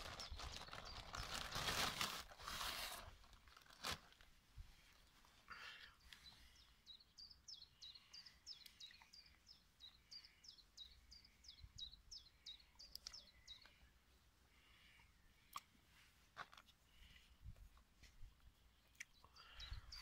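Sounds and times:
small songbird singing: 0.0s - 1.6s, 6.0s - 13.9s, 18.6s - 20.0s.

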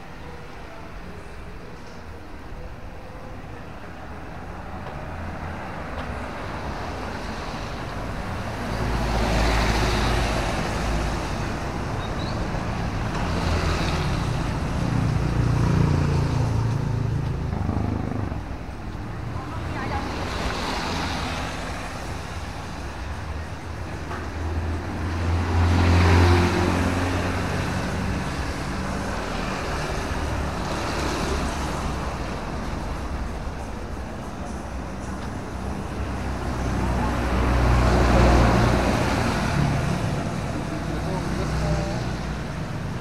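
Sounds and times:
vehicle engines passing: 0.0s - 43.0s
tyres hissing on wet road: 6.7s - 14.7s, 19.5s - 23.0s, 24.6s - 33.8s, 35.5s - 43.0s.

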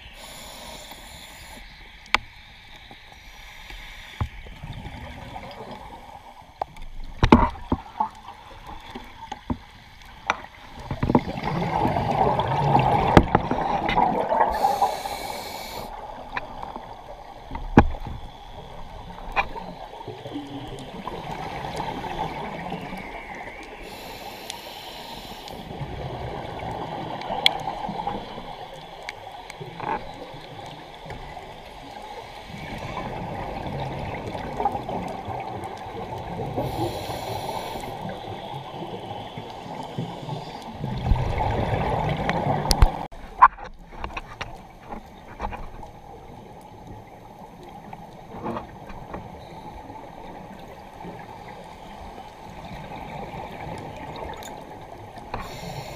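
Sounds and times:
hissing regulator inhalations: 0.0s - 4.5s, 14.4s - 16.1s, 23.7s - 25.7s, 36.6s - 40.8s, 55.4s - 55.9s
gurgling exhaled bubbles: 10.8s - 17.4s, 25.6s - 28.8s, 31.3s - 43.1s.

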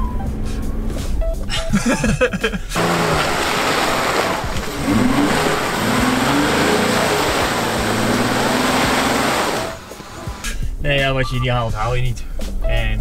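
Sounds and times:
engine revving hard: 2.8s - 10.6s
loud rushing noise: 2.8s - 10.6s.

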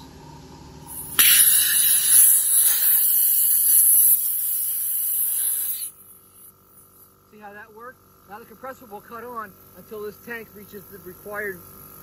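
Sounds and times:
compressed air hissing: 0.9s - 7.0s.

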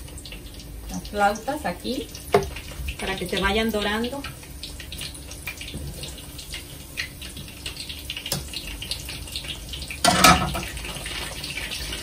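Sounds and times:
food frying in hot oil: 0.0s - 12.0s
metal tongs clattering on a pan: 10.0s - 10.8s.

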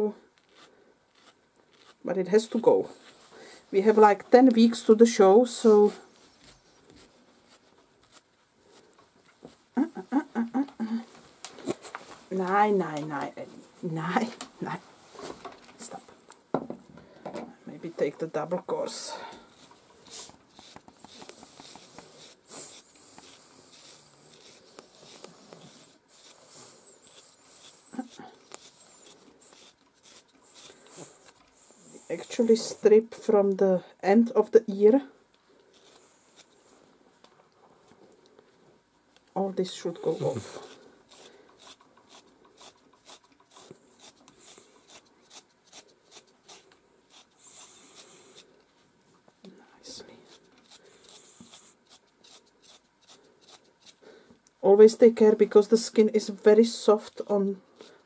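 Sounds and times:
stripping knife scraping dog coat: 0.4s - 2.7s
stripping knife scratching dog hair: 0.4s - 3.2s, 18.8s - 32.7s, 35.7s - 36.6s, 39.9s - 48.5s, 50.2s - 54.0s.

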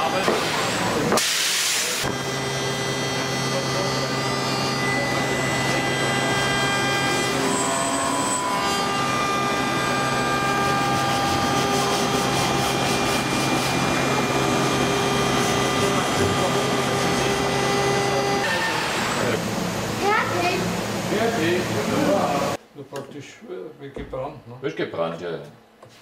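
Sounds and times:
workshop machinery hum: 0.0s - 23.2s
sanding sponge rubbing wood: 10.4s - 14.0s.

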